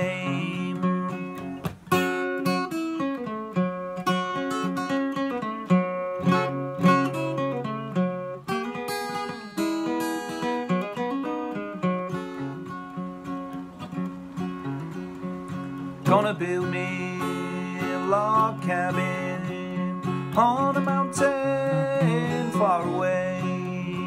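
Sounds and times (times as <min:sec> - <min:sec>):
acoustic guitar picking and strumming: 0:00.0 - 0:24.0.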